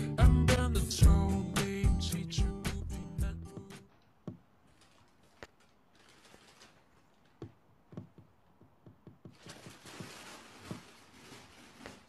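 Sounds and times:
paper bag rustling: 4.6s - 7.4s, 9.3s - 12.0s.

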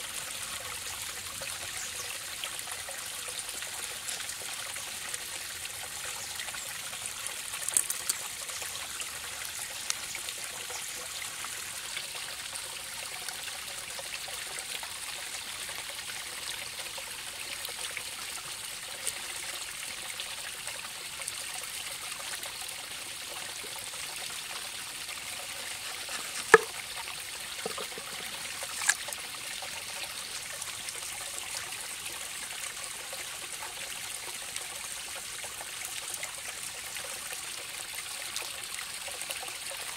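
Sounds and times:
stream running: 0.0s - 39.9s
sharp clicks from hands: 7.7s - 8.3s.

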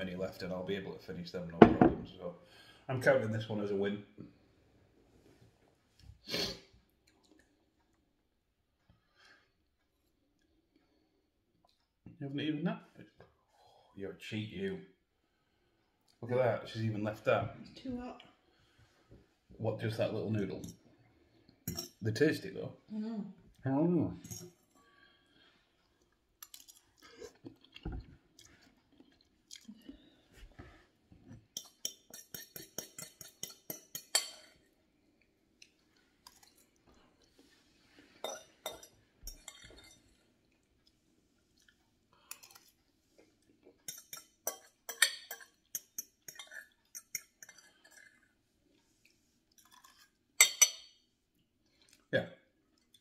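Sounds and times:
metal fork clinking on glass bowl: 21.7s - 22.0s, 31.6s - 34.5s, 43.9s - 47.6s, 49.7s - 51.0s
man chewing noodles: 25.6s - 30.2s, 51.6s - 53.0s.

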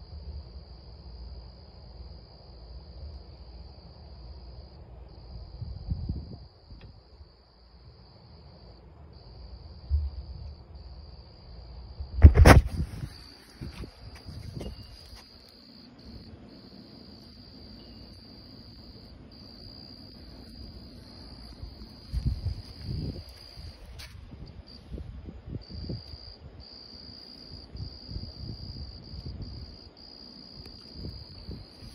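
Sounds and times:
crickets trilling: 0.0s - 31.9s
loud thump: 12.2s - 13.8s.

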